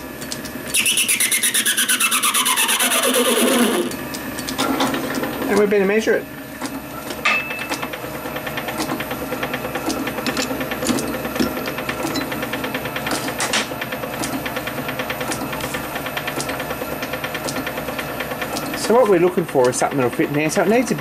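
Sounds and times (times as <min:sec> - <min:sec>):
small machine ticking clatter: 0:07.5 - 0:21.0
metal knocks and clicks: 0:09.8 - 0:12.4.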